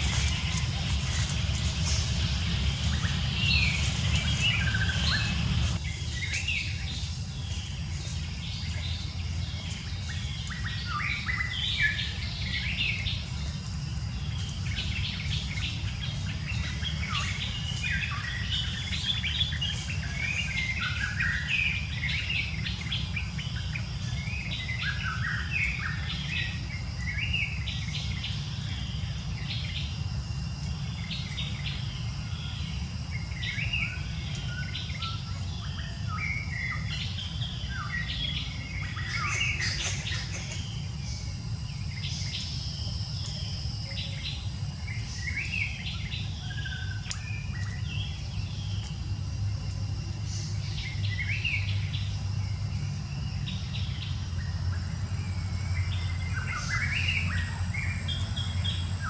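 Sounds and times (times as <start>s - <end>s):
low rumble: 0.0s - 10.8s
small birds chirping: 0.0s - 59.0s.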